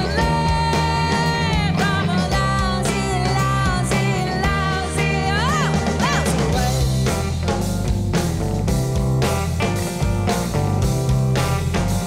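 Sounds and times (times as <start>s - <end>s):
woman singing: 0.0s - 7.0s
drums: 0.0s - 12.0s
electric guitar: 0.0s - 12.0s.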